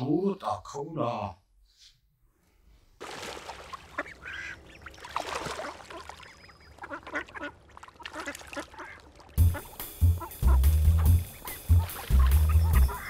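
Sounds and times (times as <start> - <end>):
ducks quacking: 3.6 - 13.0
music with heavy low beat: 9.4 - 13.0.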